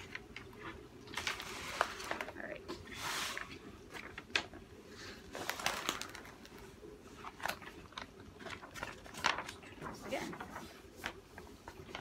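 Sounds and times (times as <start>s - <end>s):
paper crackles: 0.0s - 4.5s, 5.2s - 12.0s
paper rustling: 0.0s - 4.5s, 5.1s - 12.0s.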